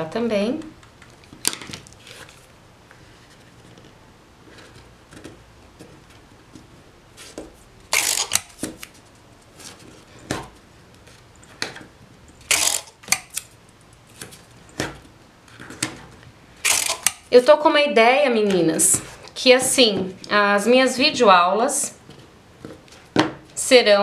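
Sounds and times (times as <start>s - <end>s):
paper and cardboard rustling: 1.5s - 7.7s, 8.6s - 11.3s.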